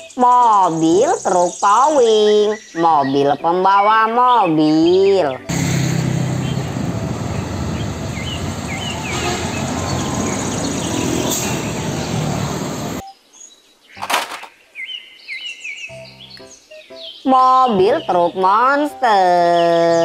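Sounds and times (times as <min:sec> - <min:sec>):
bird chirps: 0:00.0 - 0:05.5, 0:07.7 - 0:18.4
traffic noise: 0:05.4 - 0:13.0
truck diesel engine passing: 0:05.5 - 0:13.0.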